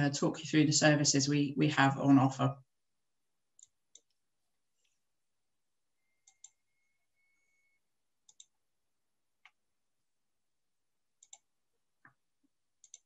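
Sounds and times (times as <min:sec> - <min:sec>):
computer mouse clicks: 0:03.6 - 0:04.2, 0:06.2 - 0:06.6, 0:08.2 - 0:08.6, 0:11.2 - 0:12.2, 0:12.8 - 0:13.0.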